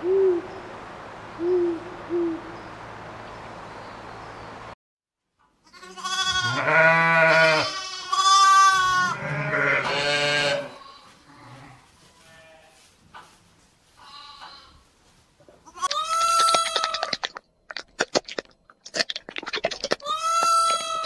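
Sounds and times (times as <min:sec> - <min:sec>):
owl hooting: 0:00.0 - 0:00.6, 0:01.4 - 0:02.6
sheep bleating loudly: 0:05.7 - 0:12.8, 0:15.7 - 0:17.0, 0:20.0 - 0:21.0.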